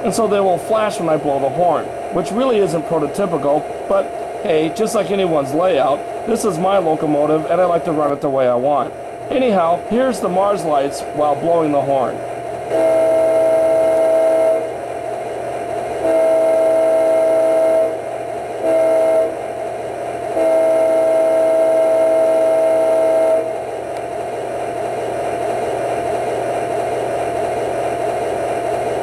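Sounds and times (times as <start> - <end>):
diesel engine sound: 0.0 - 29.0
locomotive horn blasts: 12.7 - 14.8, 16.0 - 18.0, 18.6 - 19.4, 20.3 - 23.6.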